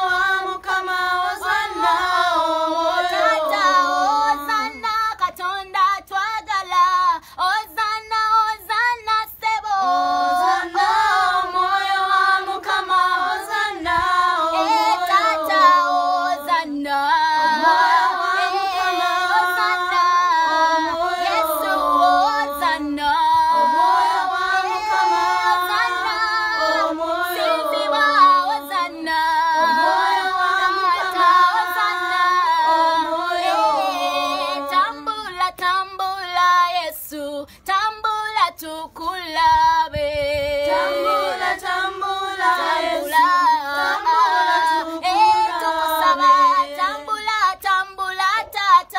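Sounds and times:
children's choir singing: 0.0s - 5.4s, 8.6s - 36.8s, 40.5s - 48.9s
girl singing lead: 0.0s - 48.9s.

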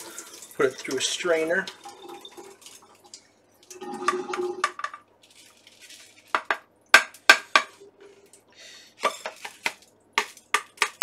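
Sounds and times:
water rushing into a strainer: 0.0s - 4.8s
strainer clattering against sink: 4.0s - 5.0s.

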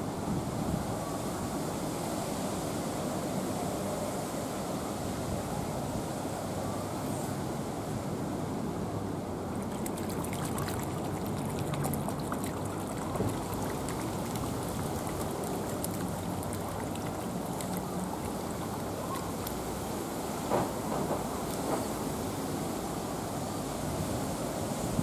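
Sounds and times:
pool water trickling and lapping: 0.0s - 25.0s
faint small splashes: 9.5s - 19.7s.

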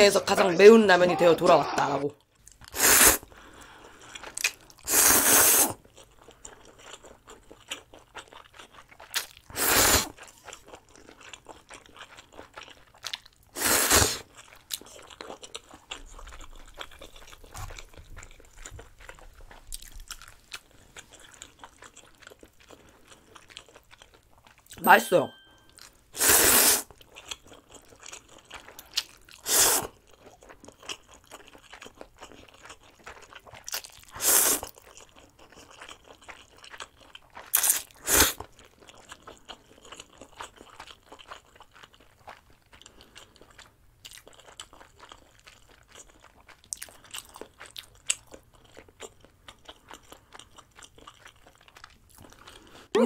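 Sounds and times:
person slurping noodles: 2.7s - 3.3s, 4.8s - 5.8s, 9.5s - 10.2s, 13.6s - 14.3s, 26.2s - 26.9s, 29.4s - 29.9s, 34.1s - 34.7s, 37.5s - 38.5s
wet chewing clicks: 14.2s - 24.8s, 26.9s - 52.7s.

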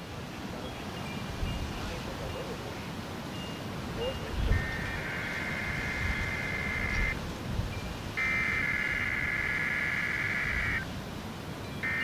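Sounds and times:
buzzing two-tone data bursts: 4.4s - 7.2s, 8.2s - 10.8s.

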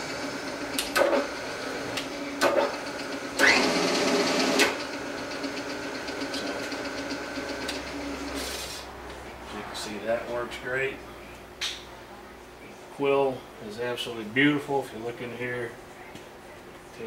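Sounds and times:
spindle motor whine: 0.0s - 8.8s.

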